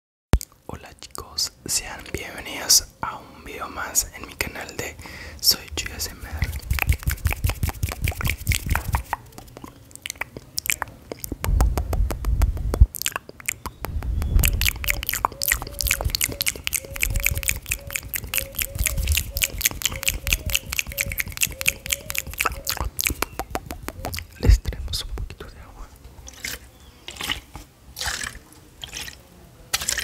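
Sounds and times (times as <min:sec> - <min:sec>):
low rumbling thumps on microphone: 0:05.6 - 0:09.5, 0:11.3 - 0:13.0, 0:13.6 - 0:16.3, 0:22.8 - 0:25.5
hands clicking and tapping: 0:06.4 - 0:25.4.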